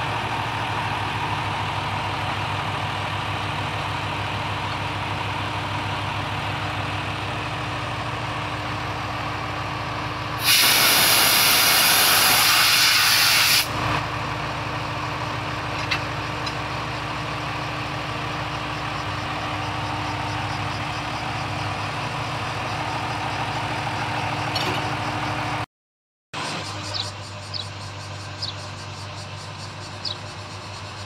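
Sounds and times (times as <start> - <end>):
diesel railcar idling: 0.0 - 25.7, 26.4 - 31.0
compressed air hiss: 10.4 - 13.7.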